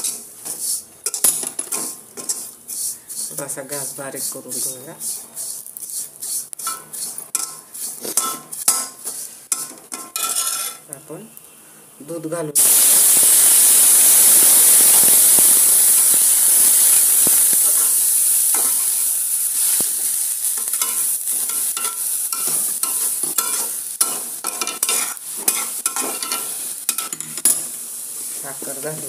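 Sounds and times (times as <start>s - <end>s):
metal spatula scraping pan: 0.0s - 10.9s, 20.6s - 27.8s
milk sizzling in hot pan: 0.0s - 11.5s, 12.6s - 29.0s.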